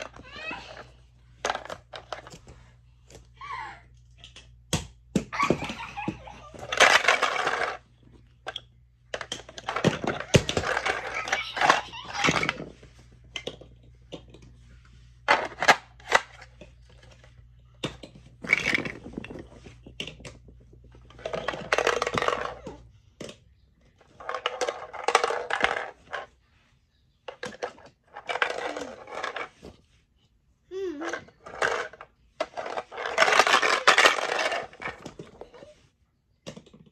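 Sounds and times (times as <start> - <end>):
plastic shapes rattling in sorter: 1.4 - 2.4, 6.5 - 7.8, 8.4 - 14.5, 15.2 - 23.4, 24.0 - 26.3, 27.3 - 29.7, 31.0 - 35.6.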